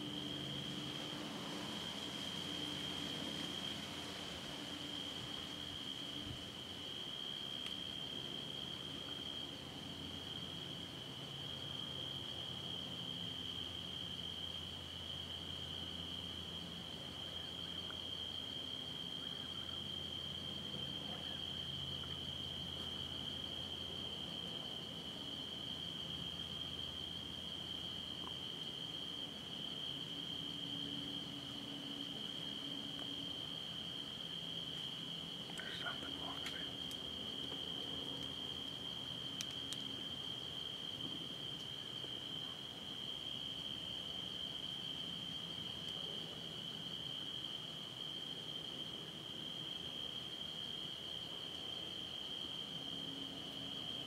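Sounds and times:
crickets chirping: 0:00.0 - 0:54.0
faint low hum: 0:00.0 - 0:54.0
faint clicks: 0:39.4 - 0:39.8.

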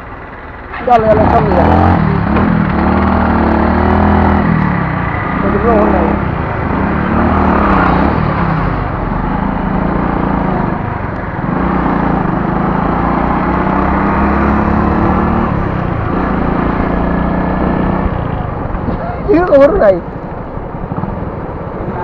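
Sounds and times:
motorcycle engine running: 0:00.0 - 0:22.0
road noise: 0:00.0 - 0:22.0.

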